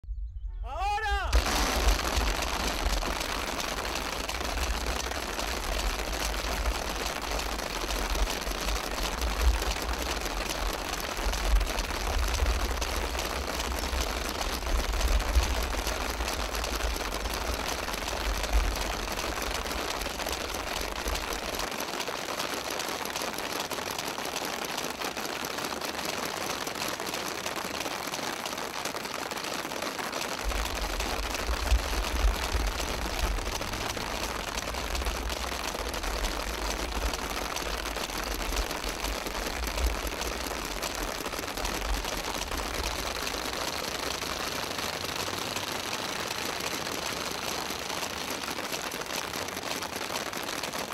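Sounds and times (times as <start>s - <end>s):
low rumble: 0.0s - 0.7s.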